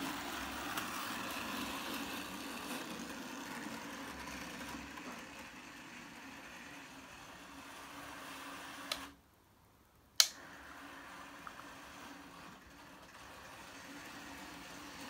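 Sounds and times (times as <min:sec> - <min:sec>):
model train humming on track: 0:00.0 - 0:09.1, 0:10.4 - 0:15.0
sharp click: 0:10.2 - 0:10.4.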